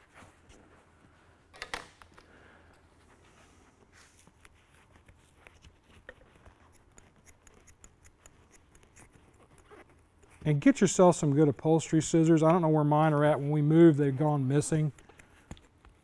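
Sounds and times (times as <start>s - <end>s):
scissors snipping foam: 5.6s - 10.5s.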